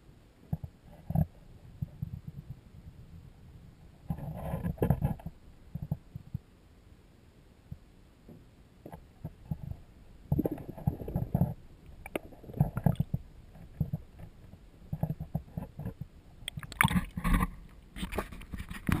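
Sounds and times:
water splashing: 16.4 - 18.3
water sloshing: 16.4 - 19.0.

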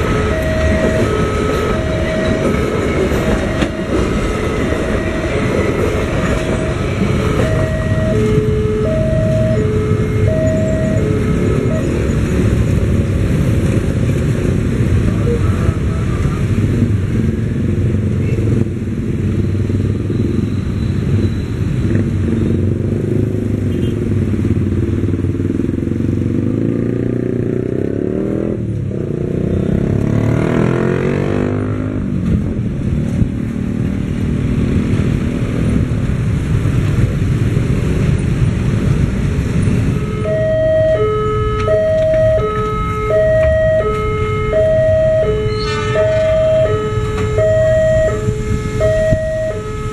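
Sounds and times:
two-tone electronic warning signal: 0.0 - 12.3, 39.8 - 49.9
train rolling on track: 0.0 - 23.6, 32.0 - 49.9
motor traffic noise: 0.0 - 49.9
vehicle passing close: 34.0 - 49.9.

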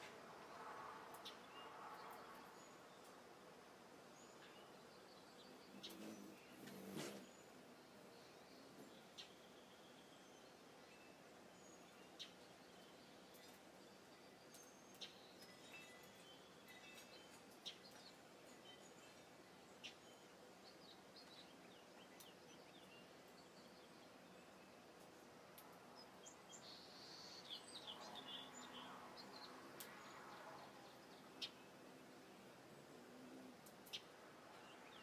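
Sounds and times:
background hiss: 0.0 - 35.0
bird chirps and calls: 5.4 - 7.5.

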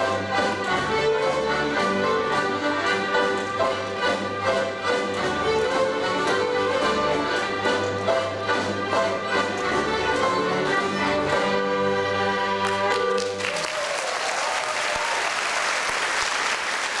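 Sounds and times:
fiddles accordion and harp playing: 0.0 - 12.9
audience applause: 12.6 - 17.0.

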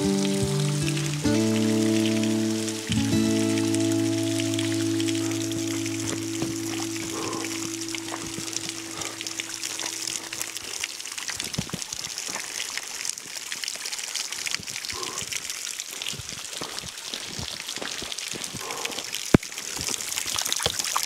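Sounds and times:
water trickling over rock: 0.0 - 21.0
footsteps splashing on wet stone: 5.1 - 13.4, 14.6 - 21.0.

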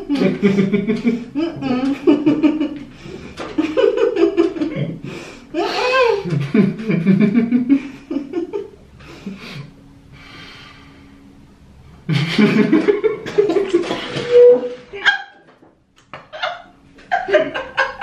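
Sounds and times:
people stifled giggling: 0.0 - 2.8, 5.6 - 8.7, 12.1 - 15.4, 16.3 - 18.0.

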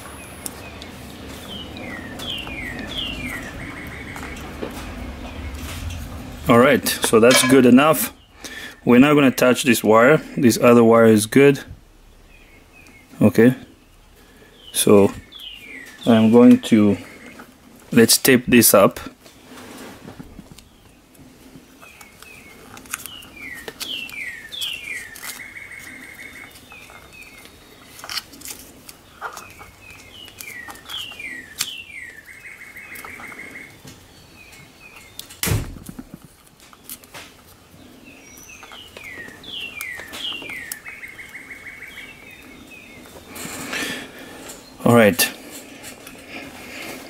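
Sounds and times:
songbird chirping and trilling: 0.1 - 17.6, 21.8 - 28.0, 29.0 - 35.4, 37.7 - 45.2
hands taping wiring: 19.2 - 41.4.

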